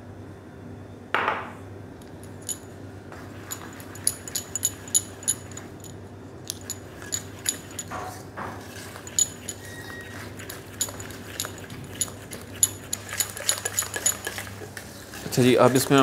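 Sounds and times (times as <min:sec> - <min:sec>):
steady low hum: 0:00.0 - 0:16.0
whisk scraping metal bowl: 0:06.6 - 0:16.0.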